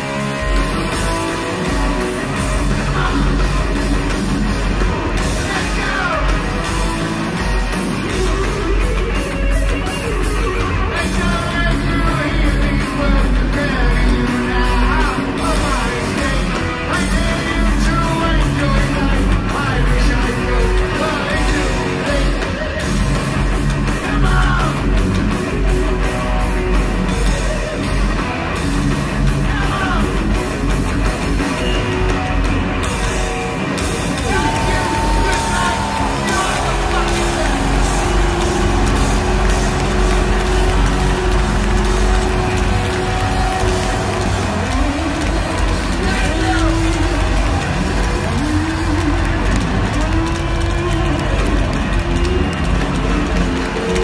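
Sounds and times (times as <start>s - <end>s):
distorted electric guitar: 0.0s - 54.0s
pounding drums: 0.0s - 54.0s
vocalist singing and yelling: 10.8s - 23.1s.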